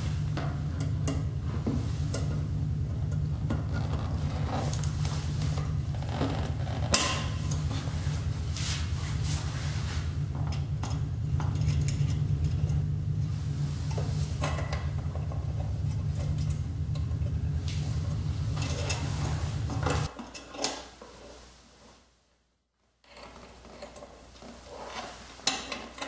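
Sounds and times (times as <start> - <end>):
steady low hum: 0.0 - 20.1.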